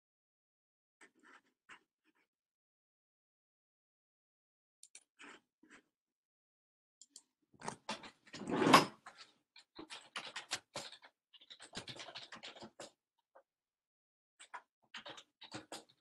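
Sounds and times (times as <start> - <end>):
clicks and scratchy rustling: 7.6 - 13.0, 14.4 - 16.0.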